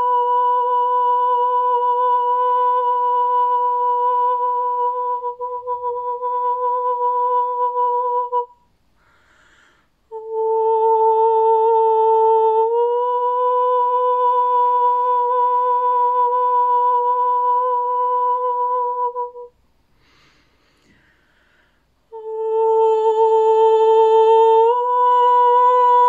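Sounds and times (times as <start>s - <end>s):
woman breathing: 8.8s - 10.1s, 19.8s - 22.1s.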